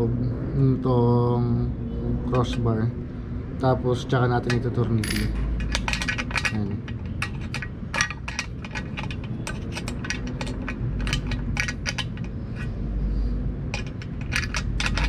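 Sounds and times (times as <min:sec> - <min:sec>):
small metal parts clinking: 0:04.4 - 0:12.8, 0:13.6 - 0:15.0.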